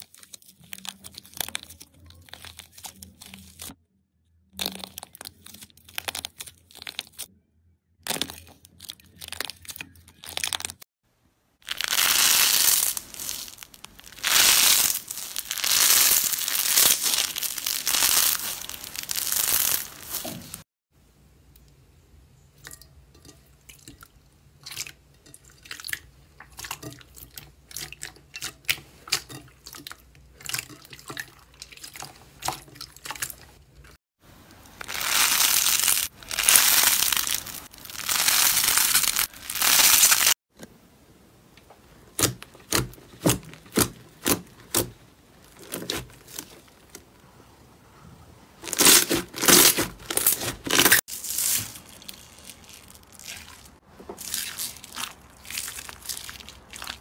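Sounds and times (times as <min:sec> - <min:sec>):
slime squelching: 0:00.0 - 0:03.8, 0:11.6 - 0:20.6, 0:34.6 - 0:40.4, 0:41.9 - 0:47.1, 0:48.6 - 0:57.0
slime crackling: 0:11.6 - 0:20.6, 0:34.6 - 0:40.4, 0:42.1 - 0:47.0, 0:48.6 - 0:57.0.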